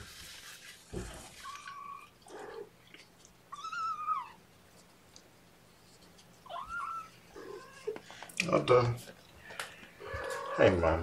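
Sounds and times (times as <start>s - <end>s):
kittens mewing: 6.4s - 8.1s.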